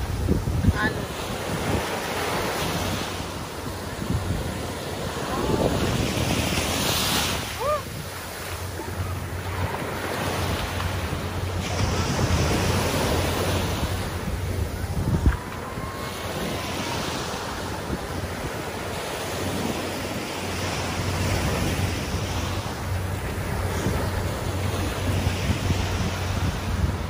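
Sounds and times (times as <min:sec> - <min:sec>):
surf washing up on sand: 0:00.0 - 0:27.0
wind buffeting microphone: 0:00.0 - 0:27.0.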